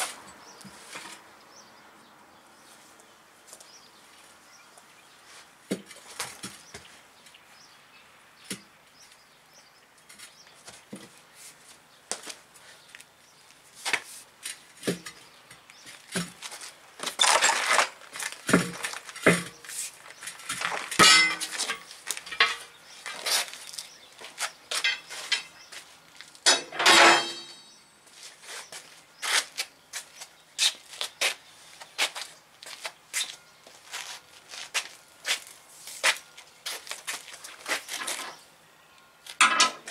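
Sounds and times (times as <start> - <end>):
tire irons clinking on metal: 20.2 - 24.0, 24.7 - 25.8, 26.4 - 28.0, 39.3 - 39.9
metal scraping: 26.5 - 27.9.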